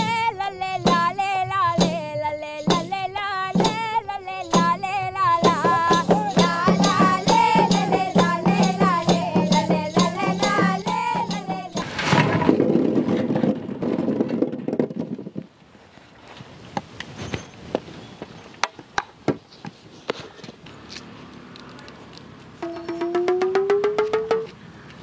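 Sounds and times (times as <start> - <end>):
fast rattling percussion: 0.8 - 11.9, 22.6 - 24.6
ornamented wavering melody: 22.6 - 24.5.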